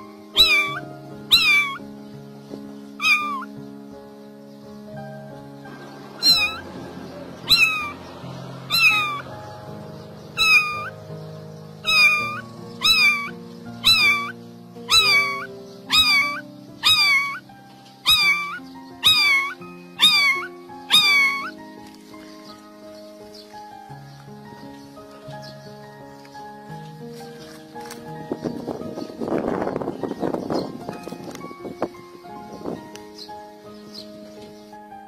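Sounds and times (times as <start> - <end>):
background music: 0.0 - 35.0
kitten meowing loudly: 0.4 - 1.8, 3.0 - 3.5, 6.2 - 6.6, 7.5 - 8.0, 8.7 - 9.2, 10.4 - 11.0, 11.8 - 17.4, 18.0 - 21.6.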